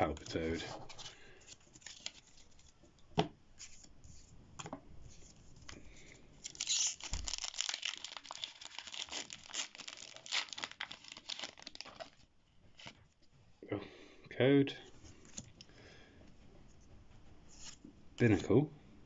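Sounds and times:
foil wrapper tearing and crinkling: 6.4s - 12.9s.

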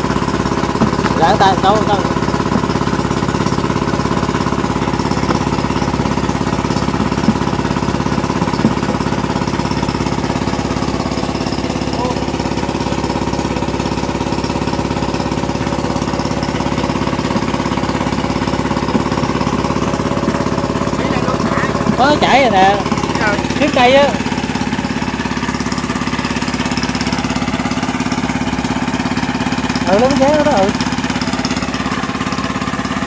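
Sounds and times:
pump engine chugging: 0.0s - 33.0s.

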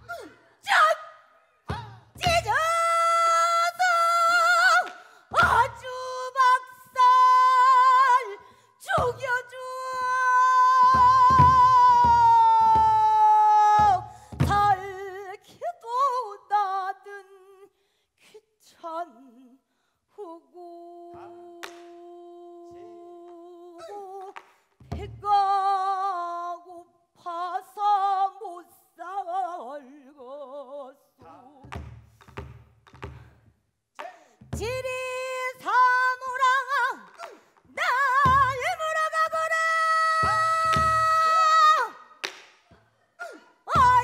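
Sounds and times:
woman singing with vibrato: 0.0s - 17.7s, 18.3s - 31.8s, 34.5s - 42.2s, 43.2s - 44.0s.

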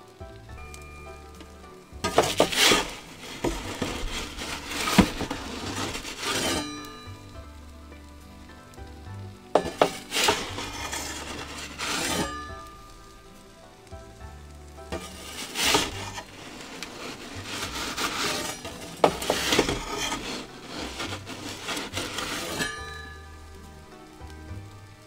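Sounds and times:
metal peel scraping on stone: 2.0s - 7.2s, 9.6s - 12.8s, 14.9s - 23.2s.

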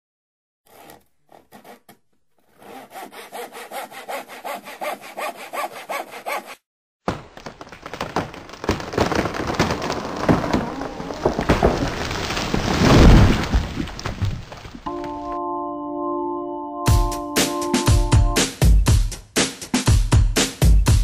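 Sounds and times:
hand saw cutting wood: 0.7s - 6.7s.

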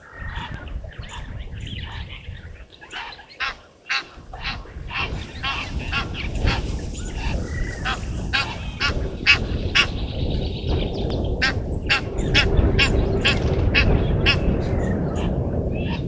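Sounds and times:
low rumble: 4.3s - 16.0s.

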